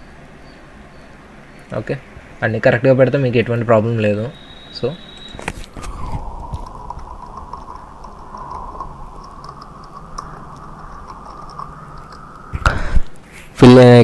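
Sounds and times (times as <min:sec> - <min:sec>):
faint electrical hum and whine: 0:00.0 - 0:14.0
keyboard keys clicking: 0:06.6 - 0:12.5.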